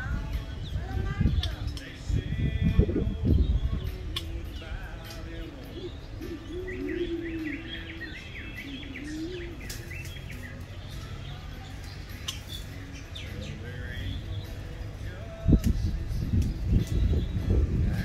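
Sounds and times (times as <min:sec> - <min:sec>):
steady low rumble: 0:00.0 - 0:07.5, 0:12.9 - 0:18.0
birds chirping: 0:00.0 - 0:18.0
doves cooing: 0:00.0 - 0:18.0.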